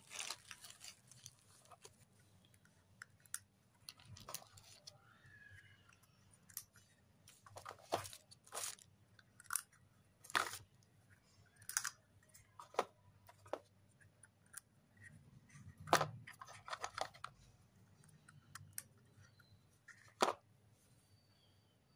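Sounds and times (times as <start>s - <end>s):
bubble wrap crinkling: 0.0s - 2.0s, 7.8s - 8.9s.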